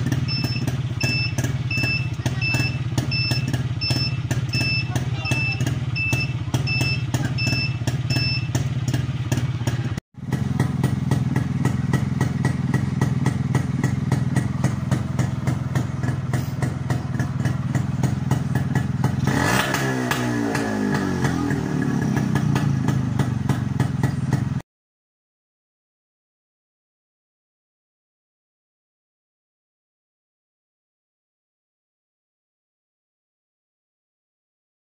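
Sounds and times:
motorcycle engine running: 0.0s - 24.6s
turn-signal buzzer beeping: 0.2s - 8.6s.

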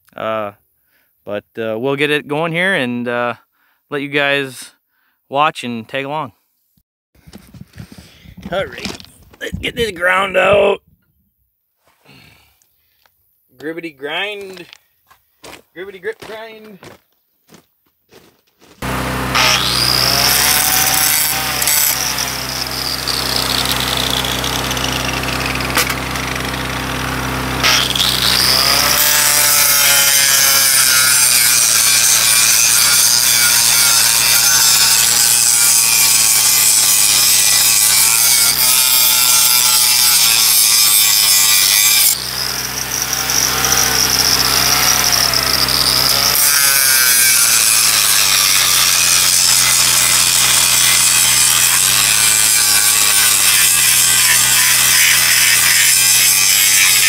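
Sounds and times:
angle grinder grinding metal: 18.8s - 57.0s.

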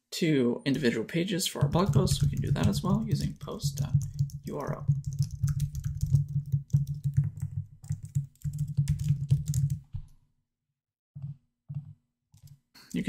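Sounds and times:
typing on computer keyboard: 1.6s - 10.1s.

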